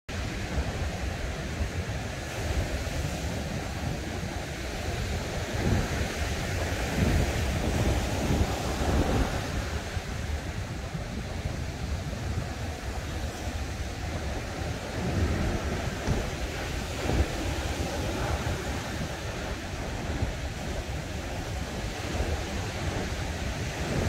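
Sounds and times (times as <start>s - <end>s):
ocean surf breaking: 0.1s - 24.0s
wind on microphone: 0.1s - 24.0s.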